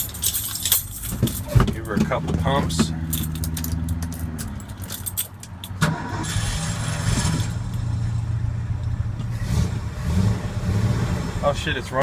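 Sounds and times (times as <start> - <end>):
engine starting and idling: 5.8 - 8.0.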